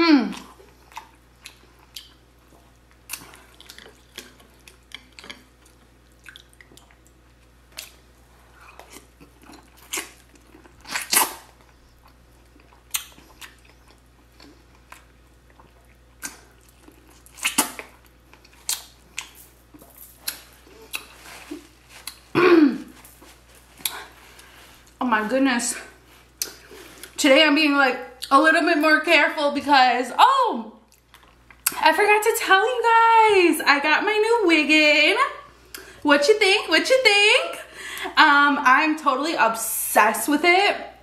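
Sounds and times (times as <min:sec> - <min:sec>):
person chewing and smacking: 0:00.3 - 0:25.0, 0:25.9 - 0:27.2, 0:30.9 - 0:31.8.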